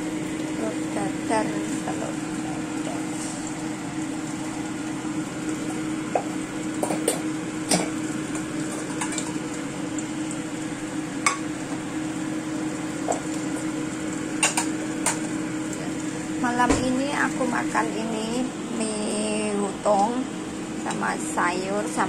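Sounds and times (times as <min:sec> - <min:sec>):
egg sizzling in hot oil: 0:00.0 - 0:16.6.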